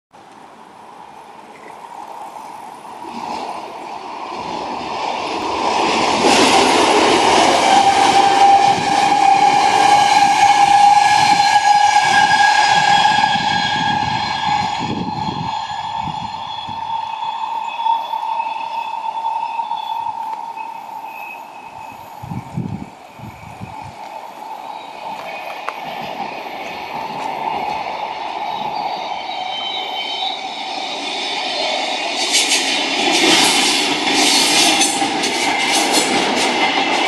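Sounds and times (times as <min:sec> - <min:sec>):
train rumbling past: 0:00.2 - 0:37.0
wheels clattering over rails: 0:32.2 - 0:37.0.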